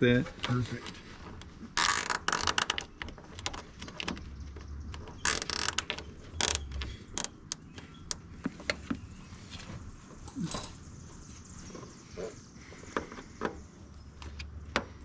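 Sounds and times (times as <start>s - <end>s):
zip tie ratchet clicking: 1.8s - 2.9s, 5.2s - 7.6s.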